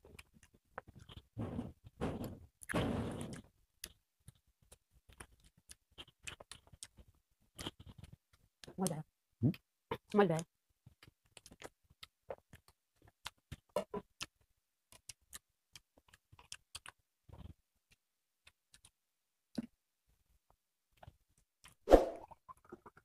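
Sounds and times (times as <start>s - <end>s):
chewing clicks and smacks: 0.1s - 1.4s, 2.6s - 19.7s.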